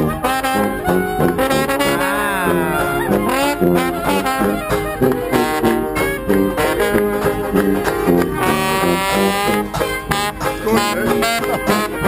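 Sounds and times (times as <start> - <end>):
brass horn lines: 0.0 - 12.0
clarinet: 0.0 - 12.0
tuba bass notes: 0.0 - 12.0.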